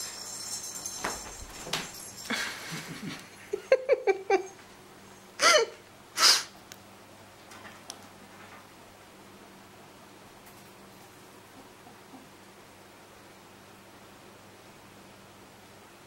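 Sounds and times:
animals thumping and scrabbling: 0.0 - 2.2.

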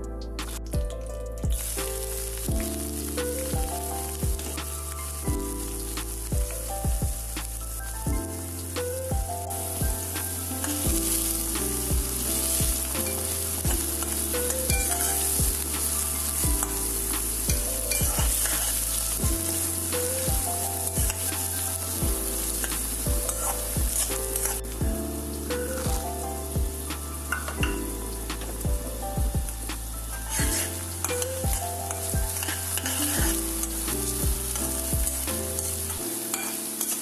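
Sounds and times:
onions sizzling in hot oil: 1.5 - 37.0
spatula stirring in steel pan: 9.6 - 24.8, 30.2 - 37.0.

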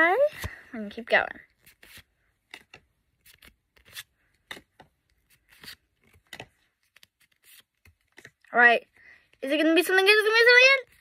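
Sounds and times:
trading cards rustling and clicking: 1.5 - 9.4.

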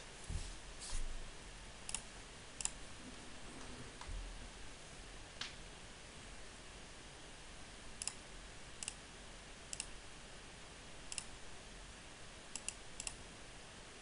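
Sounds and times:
low background hiss: 0.0 - 14.0
computer mouse clicking: 1.9 - 2.8, 8.0 - 8.2, 8.8 - 9.0, 9.7 - 10.0, 11.1 - 11.3, 12.5 - 13.2.

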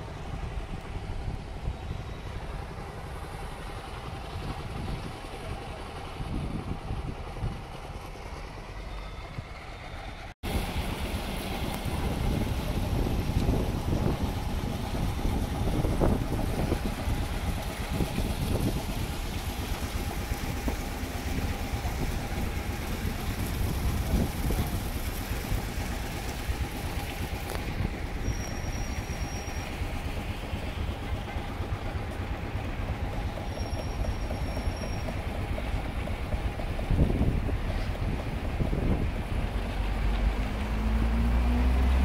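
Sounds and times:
wind rumbling on microphone: 0.0 - 8.6, 10.4 - 33.4, 34.8 - 42.0
high-pitched whistles: 28.2 - 29.8.

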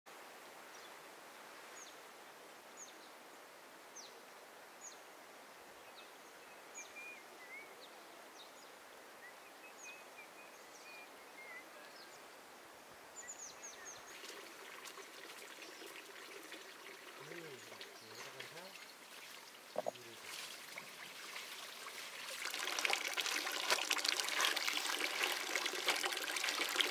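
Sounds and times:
small birds chirping: 13.2 - 20.9
faint crackling: 19.7 - 20.3.

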